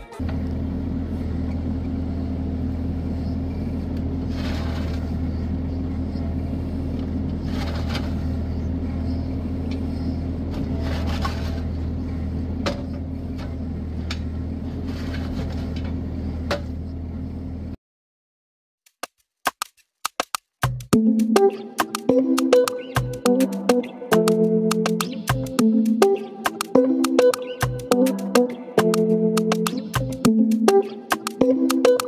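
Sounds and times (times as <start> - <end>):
diesel excavator engine running: 0.0 - 17.8
bucket scraping through gravel: 4.2 - 5.2, 7.4 - 8.2, 10.7 - 11.7, 14.7 - 15.8
sharp clicks: 18.9 - 32.0.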